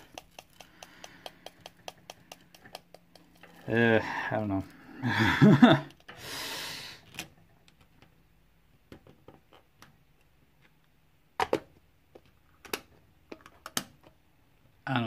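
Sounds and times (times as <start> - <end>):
pen clicking and tapping: 0.0 - 3.6.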